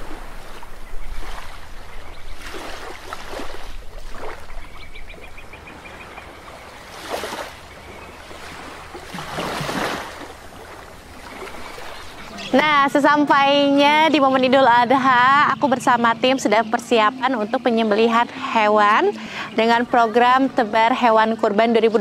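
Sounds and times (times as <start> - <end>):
rushing splashing water: 0.0 - 13.2.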